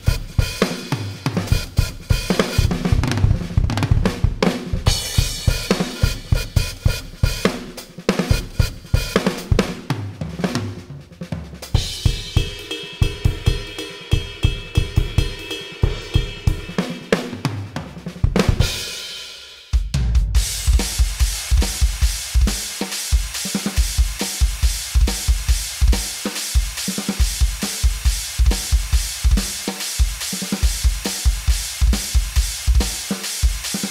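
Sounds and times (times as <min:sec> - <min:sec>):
electronic drum kit groove: 0:00.0 - 0:33.9
cymbals ringing: 0:12.0 - 0:17.1.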